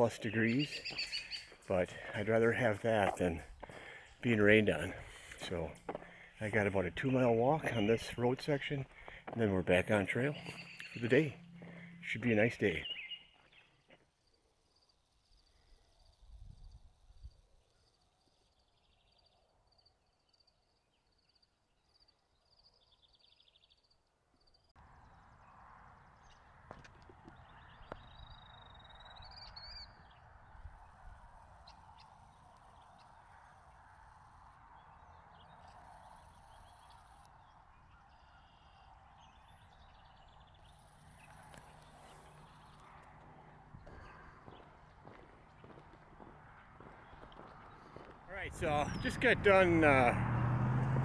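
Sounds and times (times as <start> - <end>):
faint bird chirps: 34.8 - 43.0.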